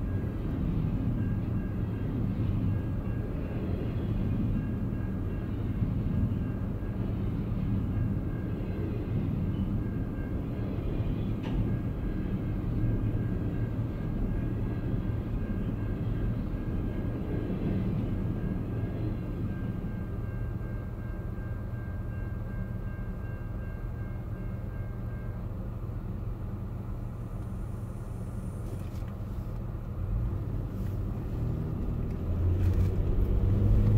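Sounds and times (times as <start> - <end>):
freight train rumbling past: 0.0 - 33.9
low engine hum: 25.8 - 33.9.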